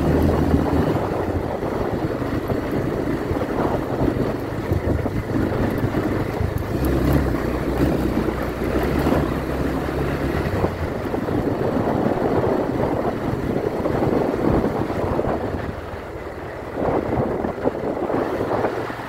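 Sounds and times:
motorcycle engine running: 0.0 - 19.0
tyres rushing on loose dirt: 0.0 - 19.0
wind noise on microphone: 0.0 - 19.0.

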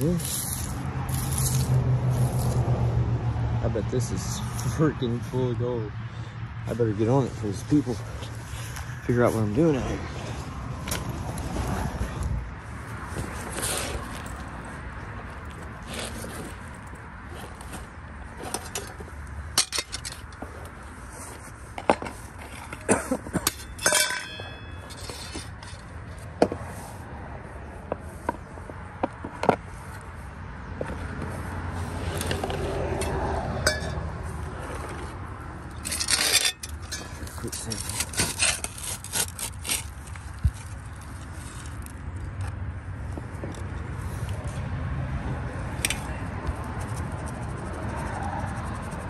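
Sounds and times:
metal gear clinking on rock: 23.4 - 25.4
tool scraping in rock crevice: 34.6 - 41.9.

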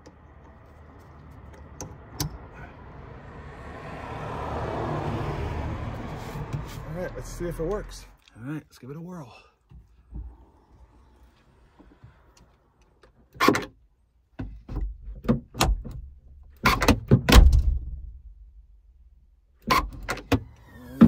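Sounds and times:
tailgate shutting thud: 16.6 - 18.1.

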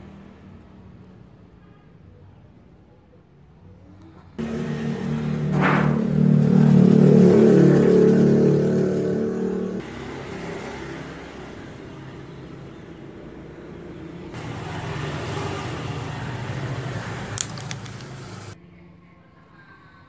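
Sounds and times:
vehicle engine running: 4.4 - 18.6
cluster of clicks: 17.3 - 18.6.

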